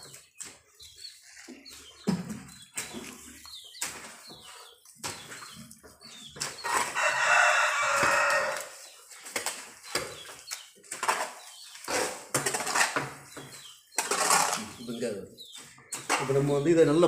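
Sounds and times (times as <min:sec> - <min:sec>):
hoe scraping wet dung mix: 0:02.6 - 0:15.0
rooster crowing: 0:07.0 - 0:08.7.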